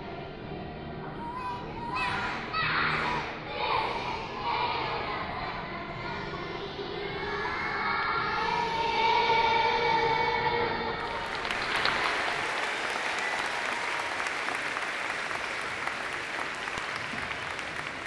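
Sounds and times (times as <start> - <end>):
children's song: 0.0 - 13.4
audience applause: 11.0 - 18.0.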